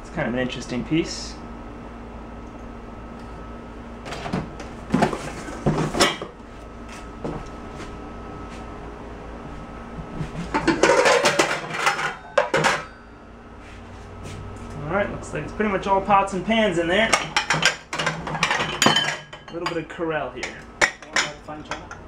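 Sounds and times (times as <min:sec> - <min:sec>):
metal pots and pans clattering: 0:10.5 - 0:13.0, 0:17.1 - 0:19.8, 0:20.4 - 0:22.0.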